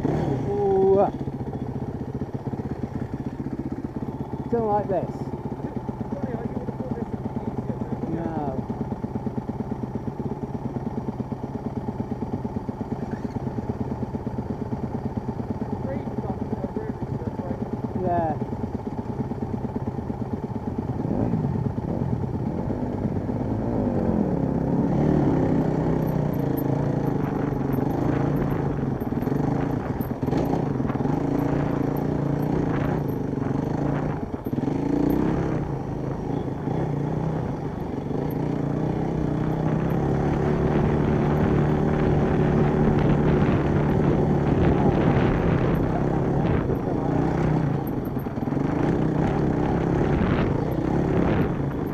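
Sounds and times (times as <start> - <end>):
dirt bike engine revving: 0.0 - 1.4, 20.9 - 51.9.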